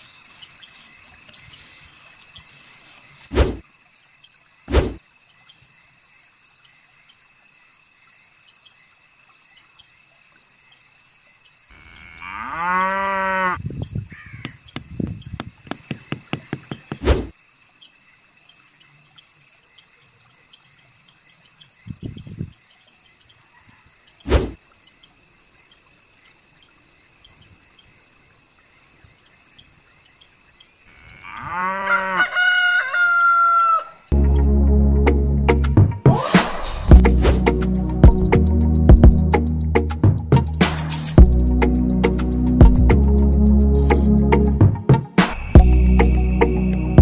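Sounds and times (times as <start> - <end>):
insects chirping: 0.0 - 34.2
cow mooing: 11.7 - 13.6, 31.0 - 32.3
sharp knocks: 14.4 - 17.3.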